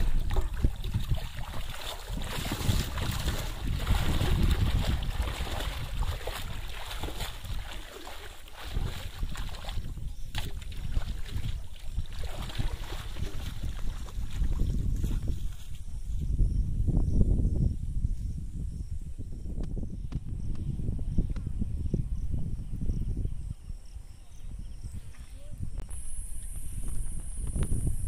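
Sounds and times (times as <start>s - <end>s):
water sloshing and splashing: 0.0s - 15.8s
wind buffeting microphone: 0.0s - 28.0s.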